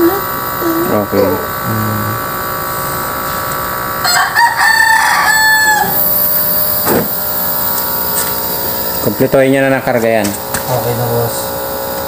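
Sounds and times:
air conditioner humming: 0.0 - 12.0
rooster crowing: 4.0 - 6.3.

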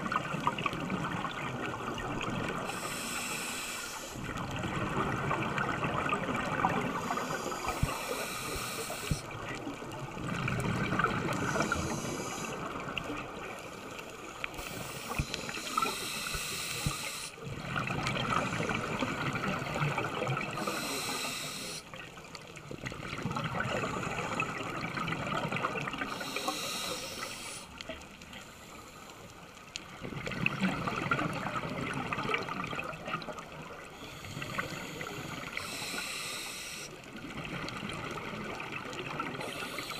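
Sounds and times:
exhaled air bubbling: 0.0 - 21.9, 22.6 - 27.7, 29.9 - 39.9
diver breathing through regulator: 2.7 - 4.2, 6.9 - 9.3, 11.3 - 12.6, 14.6 - 17.4, 20.5 - 21.8, 26.1 - 27.7, 33.9 - 37.0, 39.4 - 39.9.

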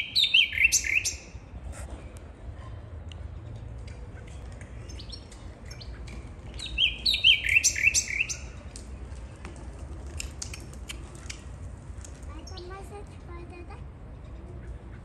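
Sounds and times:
caged bird chirping: 0.0 - 1.6, 3.4 - 8.8.

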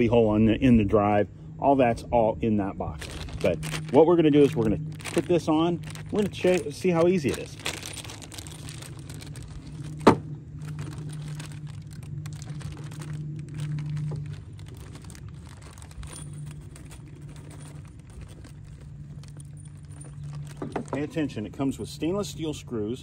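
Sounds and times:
steady low hum: 0.0 - 23.0
metal screws clinking and rattling: 13.9 - 21.2.

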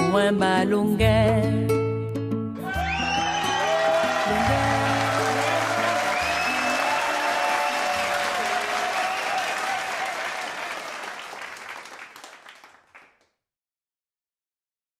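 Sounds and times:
audience applause: 2.6 - 13.2.

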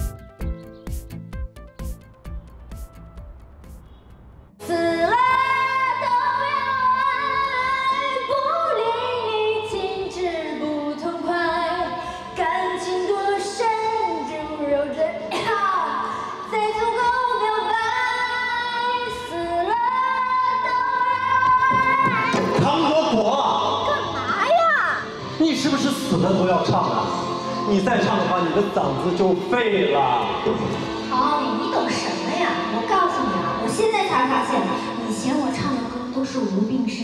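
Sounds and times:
musical accompaniment: 0.0 - 8.5, 18.4 - 36.2
woman singing: 4.6 - 22.6.

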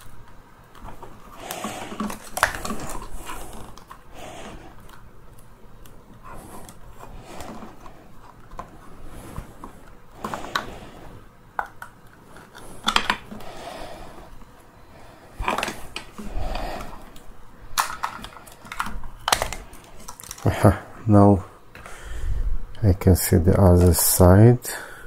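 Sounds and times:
plastic clicks knocks and scrapes: 11.6 - 13.4, 17.8 - 20.4.

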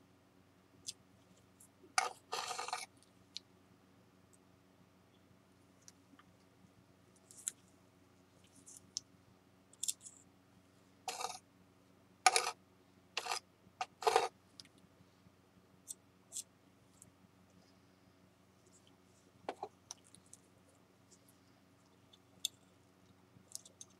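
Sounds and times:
spatula scraping on board: 2.0 - 2.9, 11.1 - 11.4, 12.3 - 12.6, 13.2 - 14.3.

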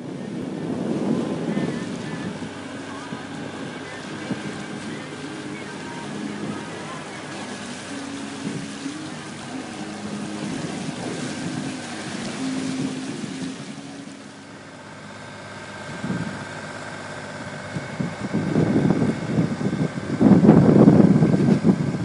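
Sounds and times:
low hum: 0.0 - 22.0
wind and water rushing: 0.0 - 22.0
wind thumps on microphone: 17.6 - 22.0.

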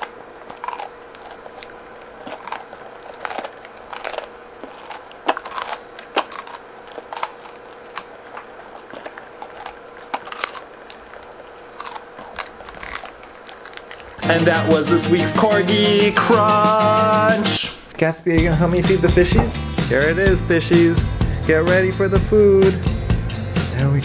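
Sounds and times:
dog crunching vegetable stalk: 0.0 - 15.8.

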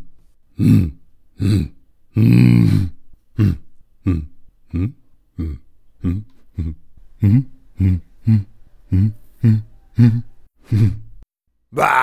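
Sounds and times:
person grunting in monster voice: 0.6 - 11.0, 11.8 - 12.0.

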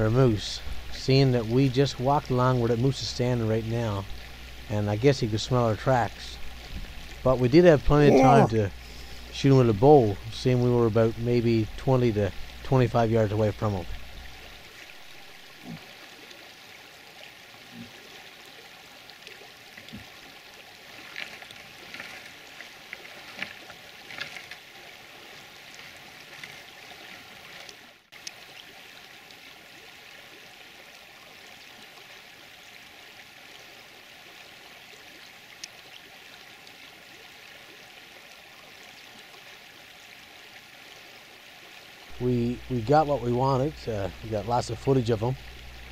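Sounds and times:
running water rushing: 0.0 - 45.9
light snaps and rustles: 21.0 - 24.6.

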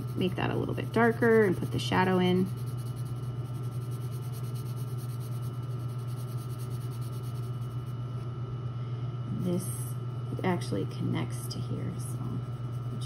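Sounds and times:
pencil scratching on paper: 0.0 - 7.9, 12.2 - 13.0
steady low hum: 0.0 - 13.0.

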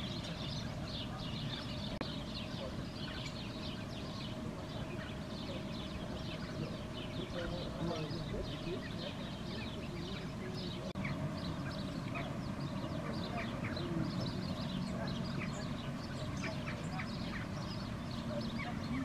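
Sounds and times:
birds chirping: 0.0 - 19.0
duck-like quacking: 14.9 - 19.0.

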